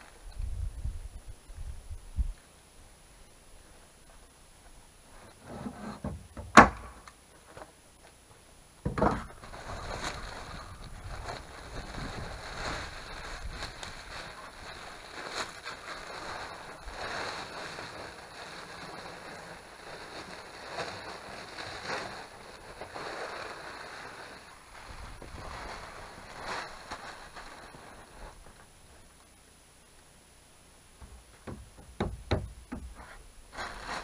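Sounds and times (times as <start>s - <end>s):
wind rumbling on microphone: 0.1s - 2.4s, 9.4s - 19.4s, 21.1s - 28.6s
roofing material rustling and crinkling: 3.6s - 30.2s, 30.8s - 34.0s.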